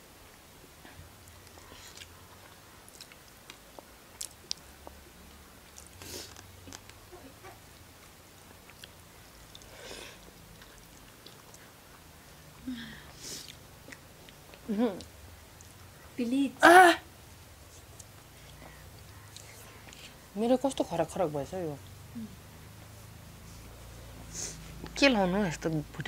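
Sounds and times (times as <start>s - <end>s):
people chewing food: 0.3s - 16.2s, 17.5s - 20.3s.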